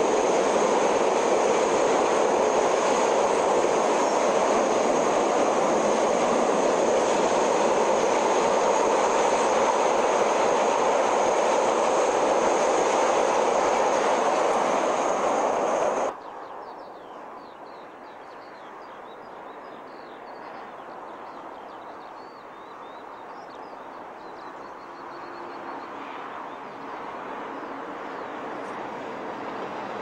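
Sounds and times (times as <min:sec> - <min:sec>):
train carriages rushing over rails: 0:00.0 - 0:16.1, 0:26.9 - 0:30.0
distant train rumble: 0:00.0 - 0:16.2, 0:24.0 - 0:30.0.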